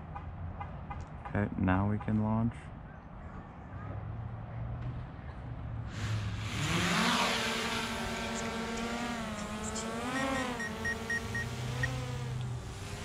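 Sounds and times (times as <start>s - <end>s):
rush of air: 5.9s - 6.8s
drone motor whine: 6.4s - 13.0s
short high beeps: 10.2s - 12.0s.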